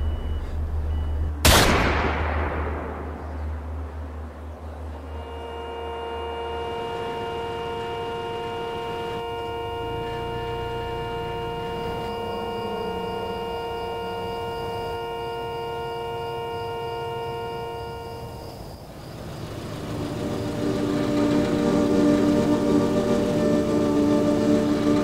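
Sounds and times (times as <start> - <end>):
electronic drone chord: 5.0 - 18.5, 19.3 - 25.0.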